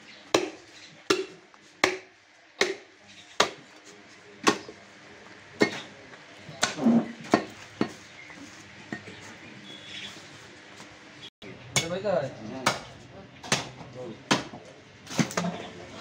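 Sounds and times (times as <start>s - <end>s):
cleaver chopping through bone: 0.4s - 3.6s, 4.4s - 4.7s, 14.3s - 14.6s.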